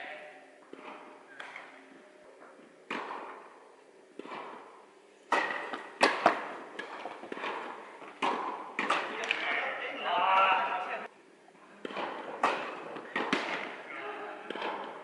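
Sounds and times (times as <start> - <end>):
racket striking tennis ball: 2.8 - 9.6, 11.8 - 15.0
tennis ball bouncing: 2.8 - 9.6, 11.8 - 13.8, 14.4 - 15.0.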